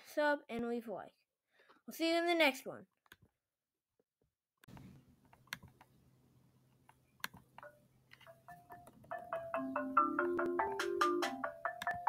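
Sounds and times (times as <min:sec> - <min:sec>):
soft clicks: 0:04.6 - 0:05.9, 0:06.7 - 0:09.1
mallet percussion music: 0:08.3 - 0:12.0.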